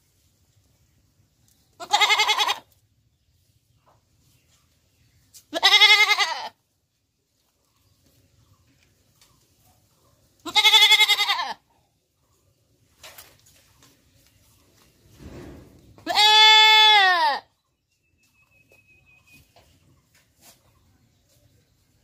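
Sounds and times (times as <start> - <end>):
goat bleating: 1.8 - 2.8, 5.5 - 6.6, 10.4 - 11.7, 16.0 - 17.5.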